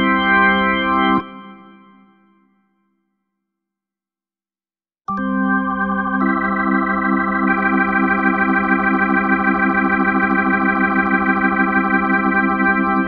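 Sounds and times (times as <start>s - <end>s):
organ chord with pulsing tremolo: 0.0s - 1.5s, 5.3s - 13.0s.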